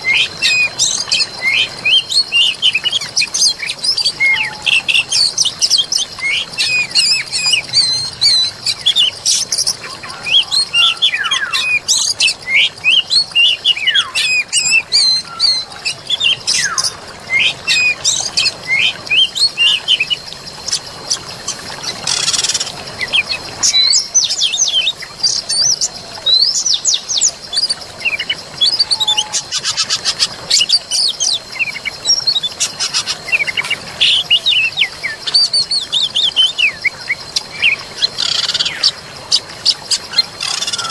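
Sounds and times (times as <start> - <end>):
birds chirping and singing: 0.1 - 20.1.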